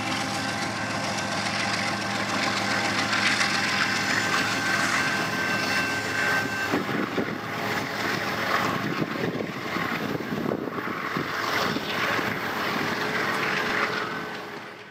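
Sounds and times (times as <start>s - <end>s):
diesel locomotives running: 0.0s - 14.9s
wheels rumbling on rail: 0.0s - 14.9s.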